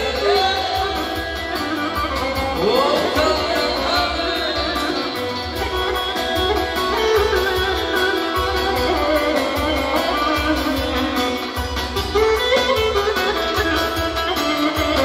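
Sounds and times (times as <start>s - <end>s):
plucked string melody: 0.0s - 15.0s.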